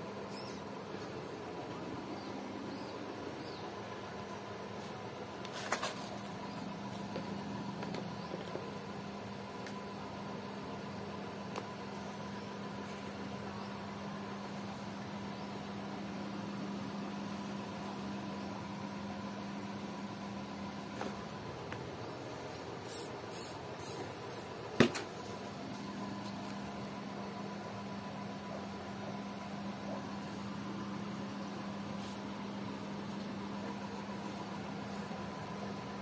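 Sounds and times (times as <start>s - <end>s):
low background hum: 0.0s - 36.0s.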